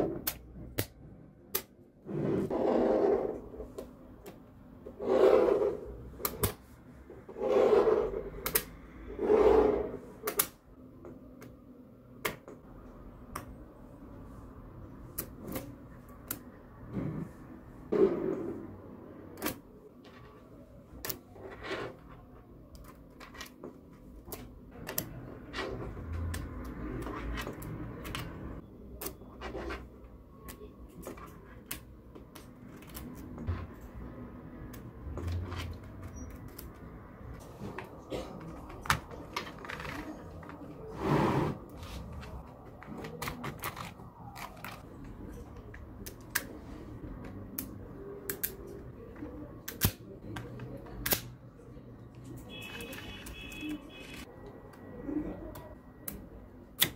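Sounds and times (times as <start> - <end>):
rubbing and scraping: 2.0 - 3.8.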